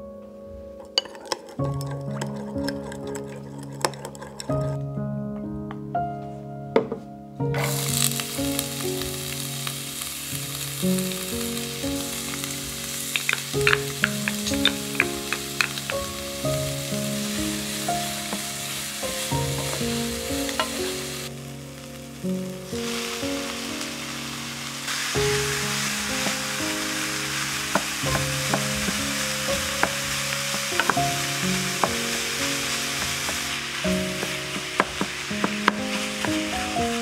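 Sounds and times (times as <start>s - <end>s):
background music: 0.0s - 37.0s
onion sizzling in oil: 0.8s - 4.8s, 7.5s - 37.0s
utensil tapping pan: 0.8s - 4.8s, 13.1s - 17.0s, 17.7s - 21.0s, 25.2s - 27.0s, 27.7s - 37.0s.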